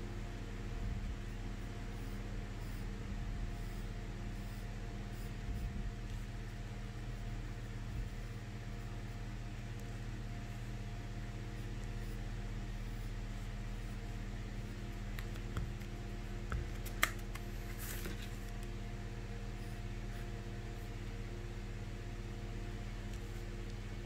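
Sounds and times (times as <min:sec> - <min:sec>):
low electrical hum: 0:00.0 - 0:24.0
pencil tapping on paper: 0:15.0 - 0:17.5.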